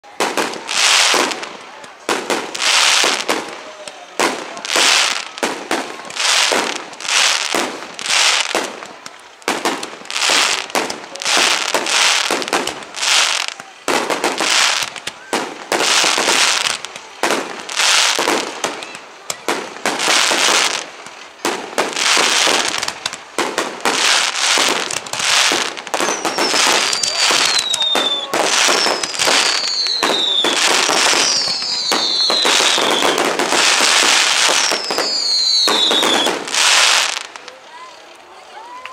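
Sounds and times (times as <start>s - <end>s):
firework shells bursting: 9.5s - 37.3s
firework whistles sliding down: 25.4s - 33.2s, 33.8s - 37.3s.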